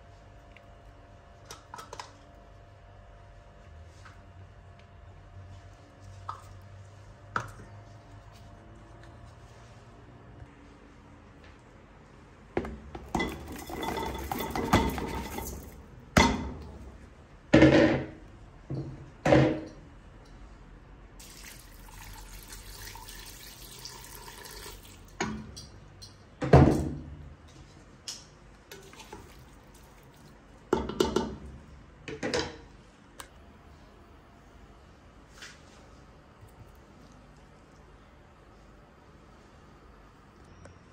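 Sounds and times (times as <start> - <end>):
steel pot clanking: 13.0 - 16.4
water pouring into pot: 13.1 - 15.8, 21.2 - 25.2, 28.8 - 30.3.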